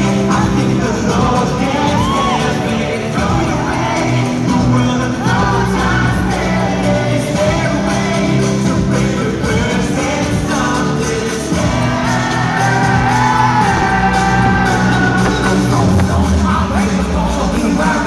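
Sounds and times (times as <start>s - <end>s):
live pop music: 0.0s - 18.0s
men singing: 0.0s - 18.0s.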